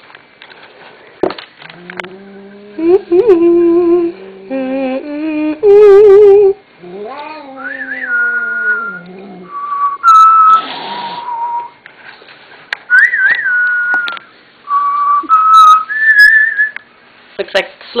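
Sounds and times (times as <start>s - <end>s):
cat growling and yowling: 6.8s - 9.6s
cat hissing: 10.4s - 11.5s.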